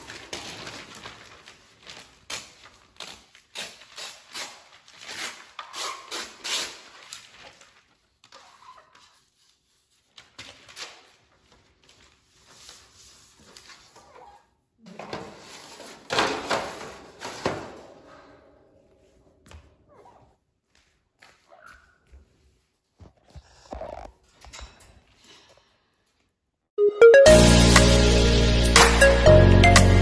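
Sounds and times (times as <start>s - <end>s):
newspaper rustling: 0.0s - 14.1s.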